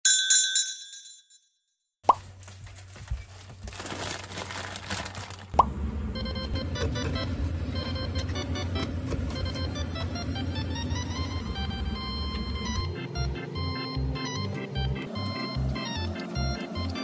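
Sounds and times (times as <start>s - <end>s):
light background music: 6.8s - 17.0s.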